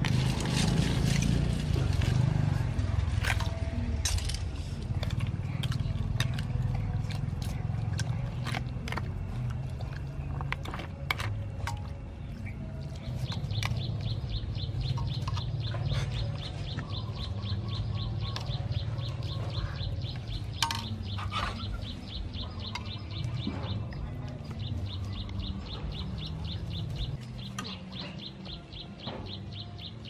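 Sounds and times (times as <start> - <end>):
clicks of metal and ice: 3.2 - 4.6
bird chirping: 5.0 - 30.0
metal ladle clinking in bowl: 20.6 - 21.0.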